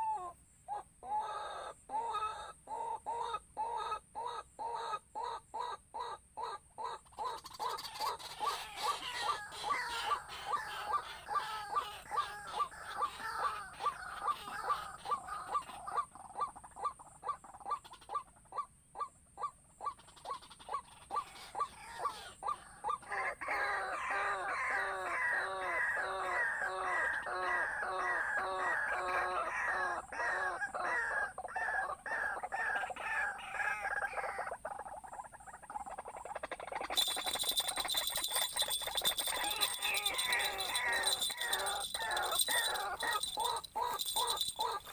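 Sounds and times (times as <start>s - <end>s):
bird calling: 0.0s - 44.9s.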